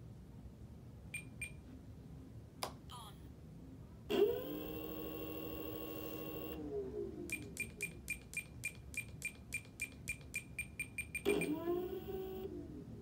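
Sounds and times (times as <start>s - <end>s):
electric motor whine: 4.1s - 7.2s.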